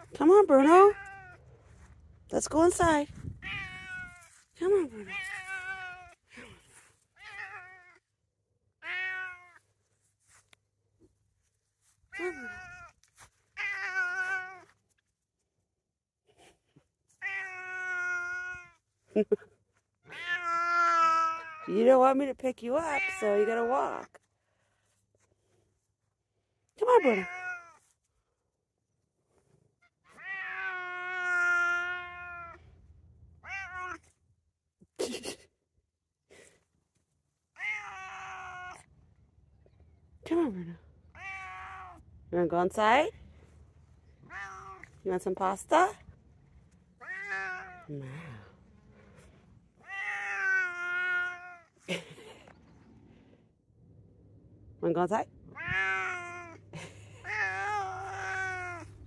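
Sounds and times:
cat meowing: 3.3s - 4.3s, 5.0s - 6.2s, 7.2s - 8.0s, 8.8s - 9.6s, 12.1s - 13.0s, 13.6s - 14.7s, 17.2s - 18.8s, 20.1s - 21.7s, 27.0s - 27.8s, 30.1s - 32.6s, 33.4s - 34.1s, 37.6s - 38.9s, 41.1s - 42.0s, 44.1s - 45.0s, 47.0s - 47.9s, 49.7s - 51.7s, 55.5s - 56.6s, 57.2s - 59.0s.

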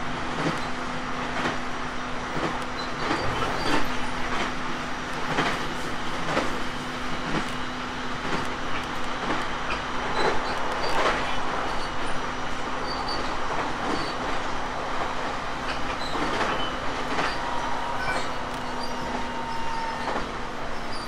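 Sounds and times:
steady train hum: 0.0s - 21.0s
train wheels clacking over joints: 12.9s - 21.0s.

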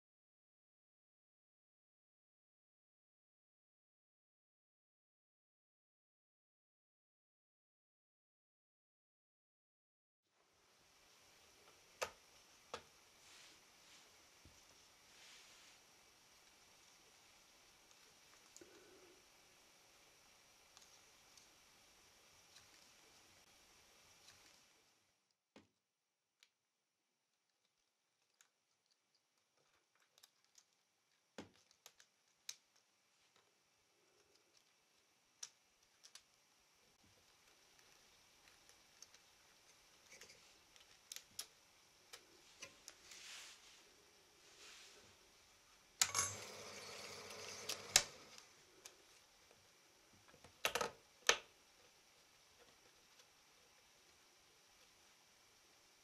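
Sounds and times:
faint hiss: 10.3s - 25.3s, 28.3s - 56.0s
faint clicks and taps: 11.6s - 13.0s, 27.3s - 43.2s
film projector running: 46.0s - 48.5s.

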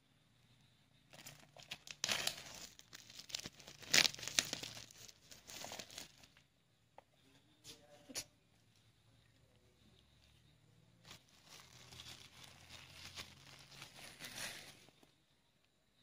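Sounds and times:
plastic packaging crinkling: 1.1s - 6.4s, 11.0s - 15.1s.

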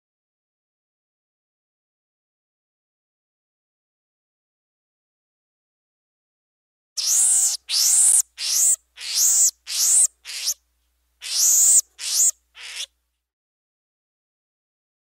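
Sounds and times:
marmoset high-pitched calls: 7.0s - 10.6s, 11.2s - 12.9s.

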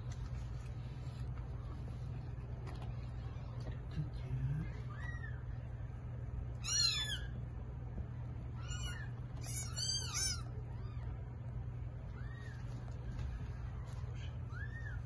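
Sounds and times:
steady low hum: 0.0s - 15.0s
kittens mewing: 6.6s - 7.5s, 8.5s - 11.4s.

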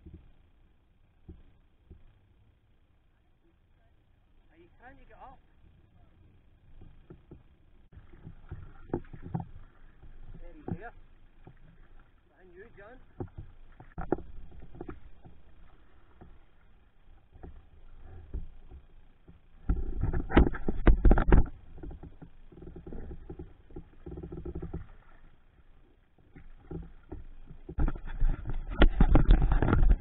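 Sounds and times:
paddle strokes in water: 4.9s - 30.0s
deep rumble and clattering knocks: 6.7s - 12.0s, 13.1s - 25.2s, 26.3s - 30.0s.

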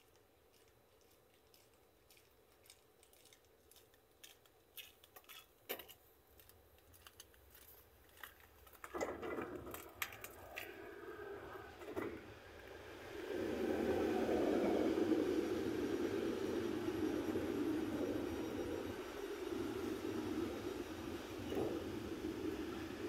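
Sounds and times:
steady rumbling noise: 8.1s - 23.0s.

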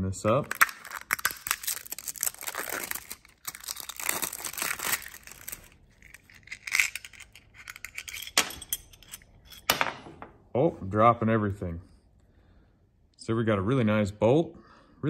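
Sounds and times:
plastic wrapping crinkling and tearing: 0.3s - 7.4s
small metal parts clicking: 0.4s - 9.8s.

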